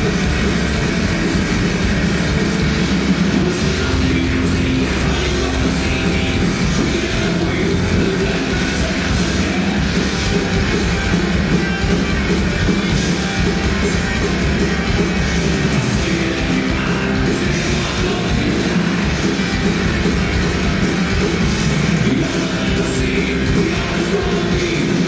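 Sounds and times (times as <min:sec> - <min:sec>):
heavy metal band playing: 0:00.0 - 0:25.0
singer shouting vocals: 0:03.3 - 0:19.2, 0:21.8 - 0:25.0.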